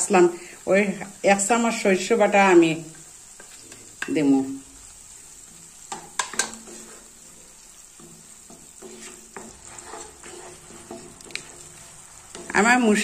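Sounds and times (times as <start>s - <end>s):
low sizzle: 0.0s - 13.0s
spatula tapping on pan: 4.0s - 4.2s, 5.8s - 6.8s, 7.9s - 9.6s, 10.8s - 12.7s
spatula scraping a pan: 5.3s - 13.0s.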